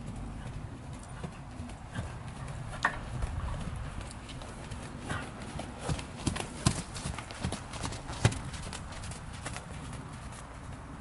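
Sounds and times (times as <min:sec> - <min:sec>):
horse hoofbeats on sand: 0:00.0 - 0:11.0.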